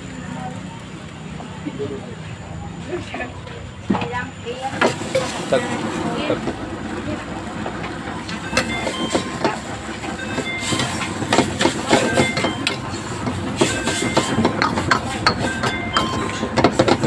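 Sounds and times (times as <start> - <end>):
frying hiss: 0.0 - 17.0.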